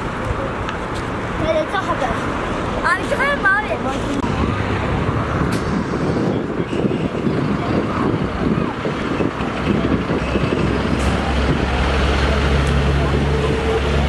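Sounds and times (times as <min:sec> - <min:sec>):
fire truck diesel engine: 0:00.0 - 0:14.0.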